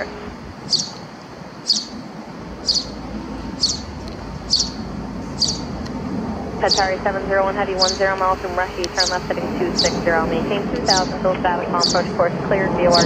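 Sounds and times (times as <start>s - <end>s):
small bird chirping: 0.0s - 5.8s, 11.8s - 12.1s.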